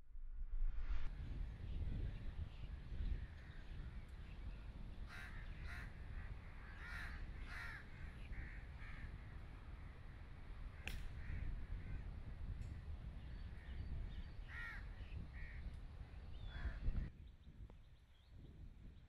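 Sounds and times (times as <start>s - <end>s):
low steady rumble: 0.0s - 6.8s
crows cawing: 5.1s - 9.4s, 14.4s - 15.7s, 16.4s - 16.8s
golf club striking ball: 10.8s - 11.2s.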